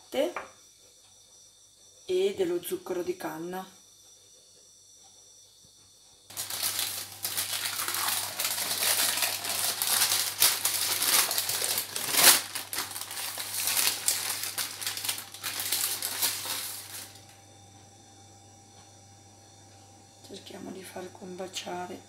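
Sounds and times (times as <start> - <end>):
baking paper crinkling: 6.3 - 17.3.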